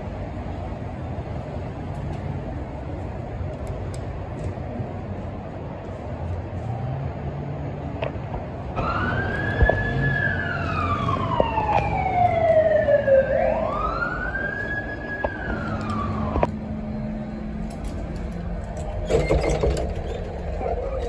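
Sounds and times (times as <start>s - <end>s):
emergency vehicle siren wailing: 8.7s - 17.8s.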